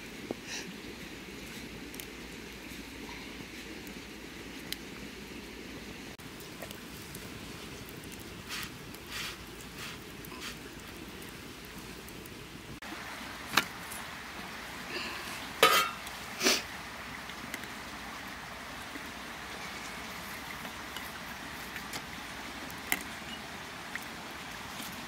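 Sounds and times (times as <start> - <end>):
outdoor background hiss: 0.0 - 25.0
utensils and dishes clinking: 15.6 - 16.0.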